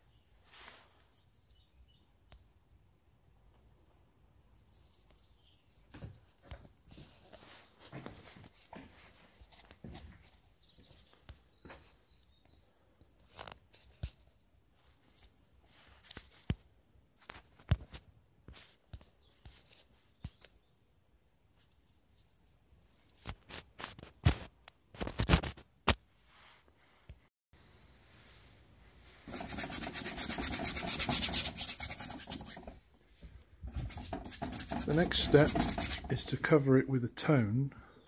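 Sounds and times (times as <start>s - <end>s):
light scratching and rubbing: 29.0s - 36.6s.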